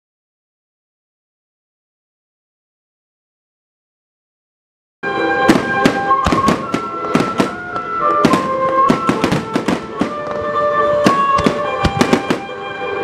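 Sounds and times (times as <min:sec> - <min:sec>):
music with held notes: 0:05.0 - 0:13.0
fireworks bursting: 0:05.1 - 0:12.8.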